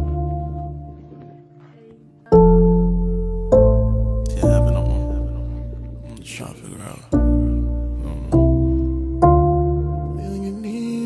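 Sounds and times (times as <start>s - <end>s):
held chords over deep bass: 2.4s - 6.4s, 7.2s - 11.0s.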